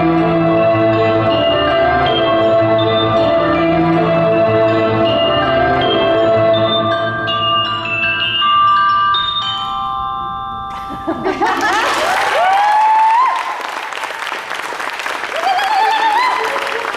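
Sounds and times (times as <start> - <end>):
bell-like mallet music: 0.0 - 11.8
audience applause: 11.4 - 16.9
whoops and cheers: 11.8 - 13.9, 15.3 - 16.9.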